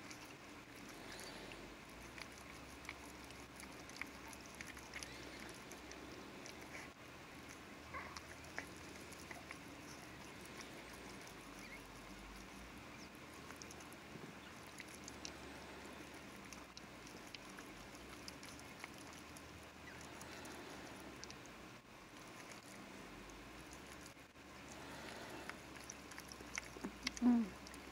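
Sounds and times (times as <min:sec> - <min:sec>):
puppies squeaking: 0:08.0 - 0:13.7.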